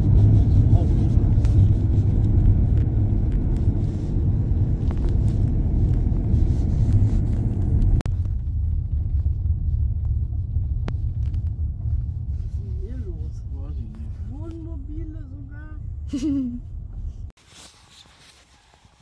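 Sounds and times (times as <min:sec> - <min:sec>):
car interior rumble: 0:00.0 - 0:17.4.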